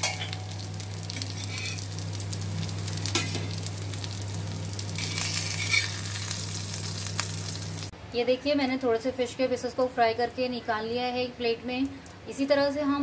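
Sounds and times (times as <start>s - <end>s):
fish sizzling in oil: 0.0s - 7.9s
steady low hum: 0.0s - 8.4s
steel spatula scraping pan: 1.2s - 1.9s, 5.0s - 6.1s.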